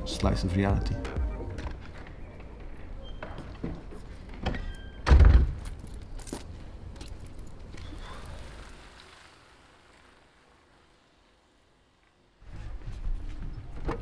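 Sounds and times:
heavy door thudding shut: 0:05.0 - 0:05.6.

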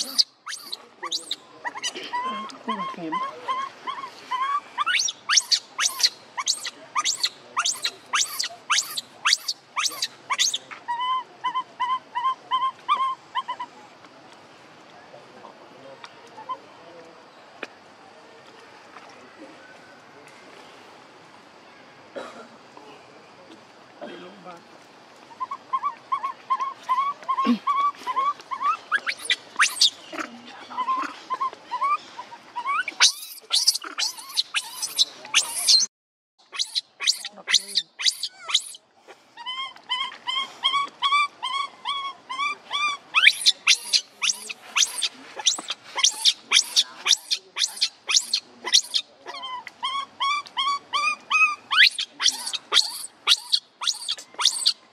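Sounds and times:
baby monkey screaming: 0:00.0 - 0:13.7, 0:25.4 - 0:35.9, 0:36.5 - 0:38.8, 0:39.4 - 0:54.8
baby monkey whimpering calls: 0:00.0 - 0:13.7, 0:25.3 - 0:35.9, 0:36.5 - 0:38.8, 0:39.4 - 0:54.8.

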